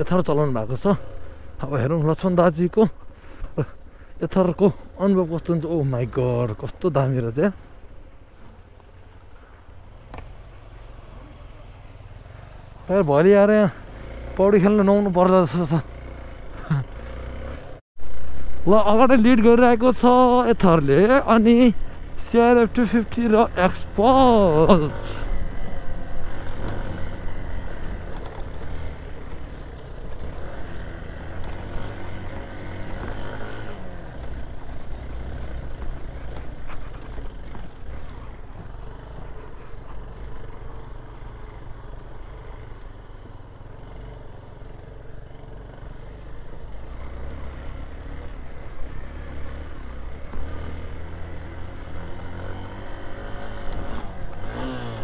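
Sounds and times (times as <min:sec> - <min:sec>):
wind and road rumble: 0:00.0 - 0:55.0
motorcycle engine running: 0:07.9 - 0:55.0.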